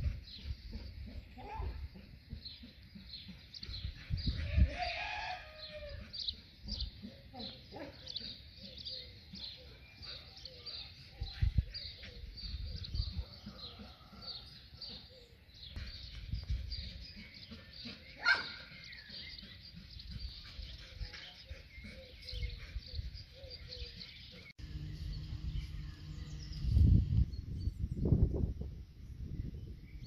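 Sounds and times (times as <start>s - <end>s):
wind rumble on microphone: 0.0s - 2.0s, 3.6s - 6.1s, 11.1s - 13.5s, 15.8s - 17.1s, 24.7s - 30.0s
small birds chirping: 0.0s - 30.0s
steady low hum: 24.4s - 29.4s.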